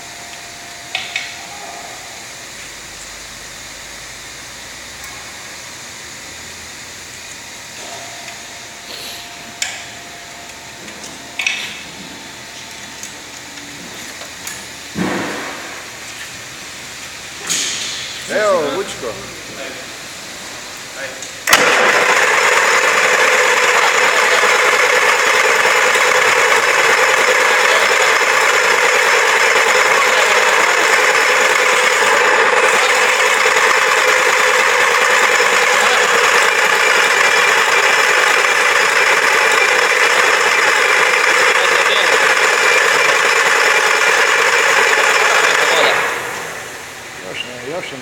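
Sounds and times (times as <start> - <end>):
loud diesel engine running: 21.4 - 48.0.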